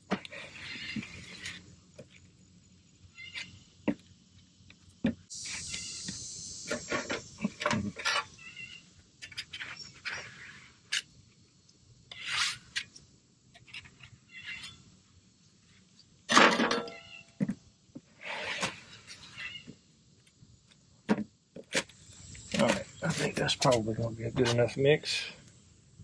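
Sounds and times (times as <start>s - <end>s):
putty knives scraping: 12.1s - 12.9s.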